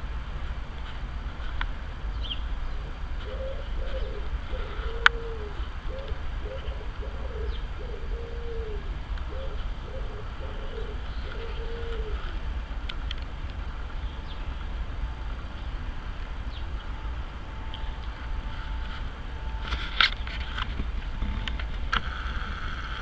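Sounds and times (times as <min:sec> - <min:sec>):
steady low rumble: 0:00.0 - 0:23.0
pigeon cooing: 0:03.2 - 0:12.4.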